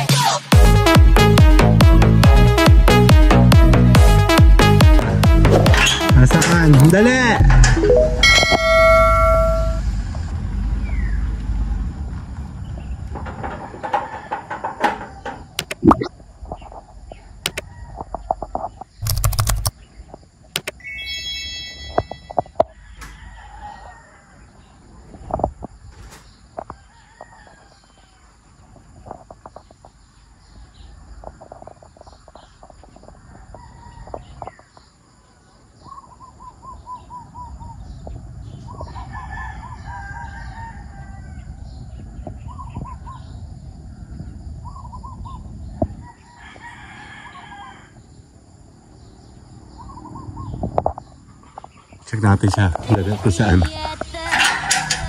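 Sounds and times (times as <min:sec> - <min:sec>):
rooster crowing: 0:13.6 - 0:15.4, 0:22.6 - 0:24.7, 0:26.8 - 0:28.3, 0:33.2 - 0:34.2, 0:38.8 - 0:41.8, 0:45.9 - 0:48.0, 0:54.3 - 0:55.0.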